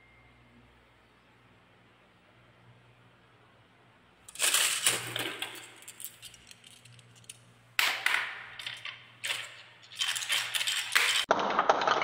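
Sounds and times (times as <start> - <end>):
balls rattling down wooden marble run: 8.0 - 12.0.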